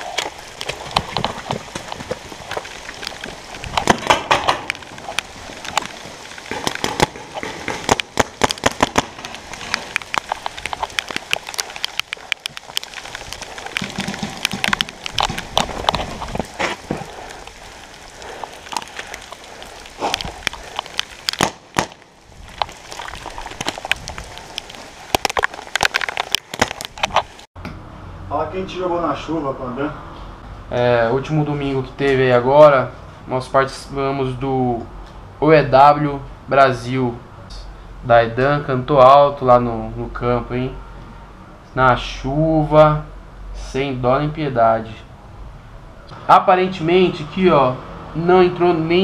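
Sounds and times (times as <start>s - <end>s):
heavy rain hissing: 0.0s - 27.5s.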